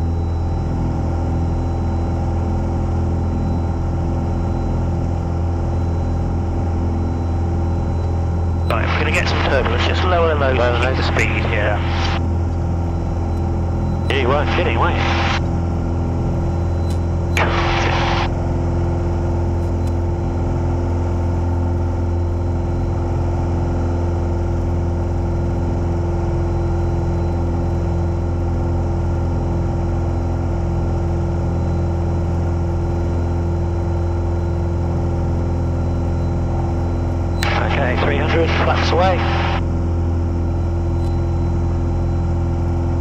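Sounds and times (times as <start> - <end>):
propeller aircraft engine droning: 0.0 - 43.0
short burst of noise: 17.4 - 18.3.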